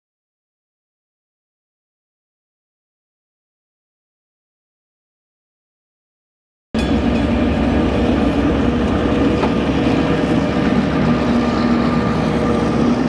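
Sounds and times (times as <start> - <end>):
diesel locomotive passing: 6.8 - 13.0.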